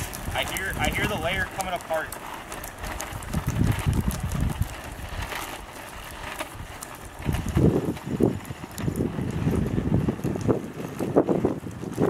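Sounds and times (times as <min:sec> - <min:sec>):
wheels rolling on asphalt: 0:00.0 - 0:12.0
wind gusting on microphone: 0:00.0 - 0:12.0.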